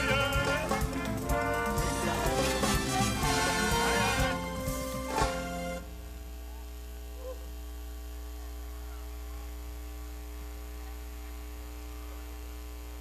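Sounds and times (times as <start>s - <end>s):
electrical mains hum: 3.8s - 13.0s.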